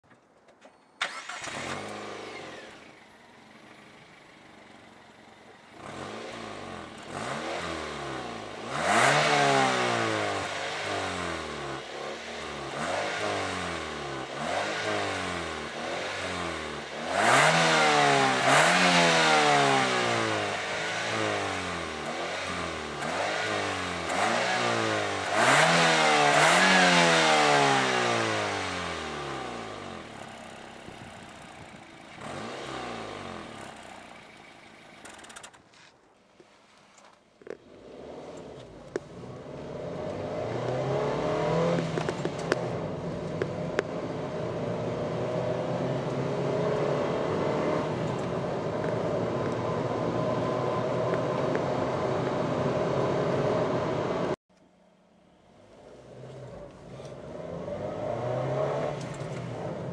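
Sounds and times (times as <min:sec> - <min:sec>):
car engine starting: 0:00.1 - 0:35.9, 0:36.6 - 0:54.4, 0:55.2 - 0:59.9
car engine revving: 0:01.0 - 0:35.5, 0:37.6 - 0:54.4, 0:55.7 - 0:59.9.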